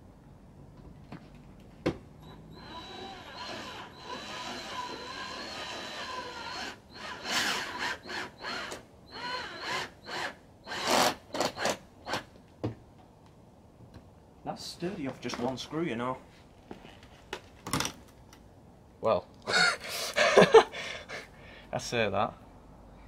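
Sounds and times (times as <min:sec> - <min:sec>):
power drill driving screw: 0:02.2 - 0:12.3.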